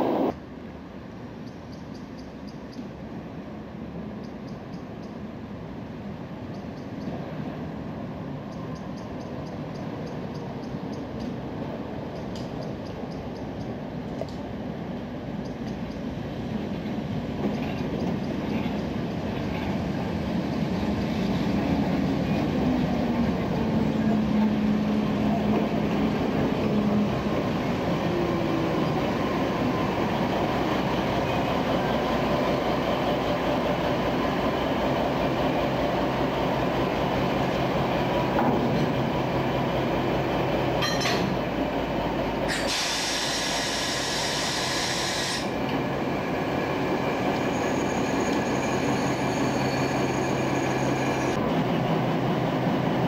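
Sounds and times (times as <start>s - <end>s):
diesel locomotive engine: 0.0s - 1.4s, 5.2s - 53.0s.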